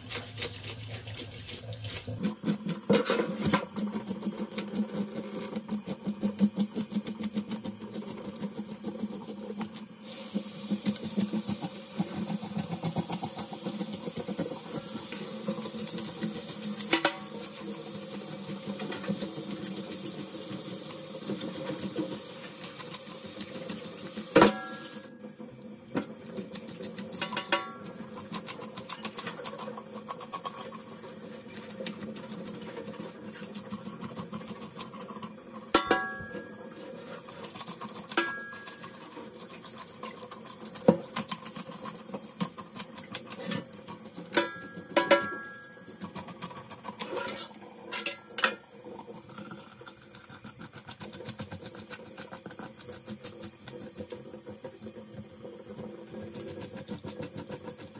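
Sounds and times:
knife scraping fish: 0.0s - 7.9s, 26.6s - 35.4s, 46.0s - 47.6s, 50.2s - 54.0s.

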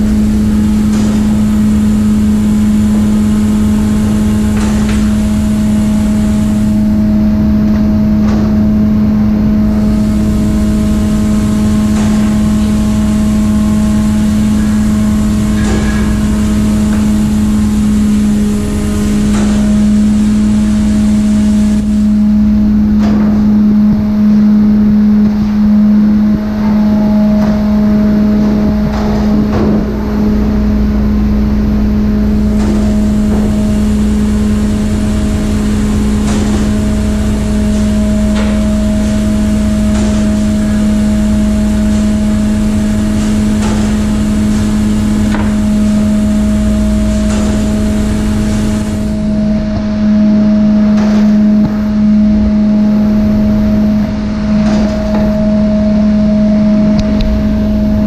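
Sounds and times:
ship machinery drone: 0.0s - 58.0s.

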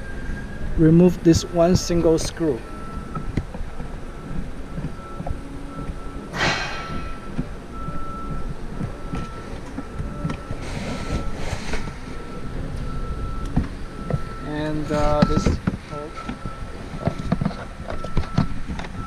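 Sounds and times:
brief rush of noise: 6.3s - 7.0s.

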